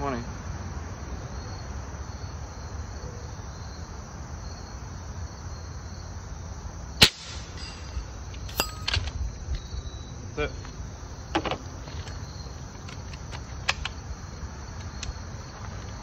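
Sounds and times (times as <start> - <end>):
insects chirring: 0.0 - 16.0
air rifle shot: 7.0 - 8.1.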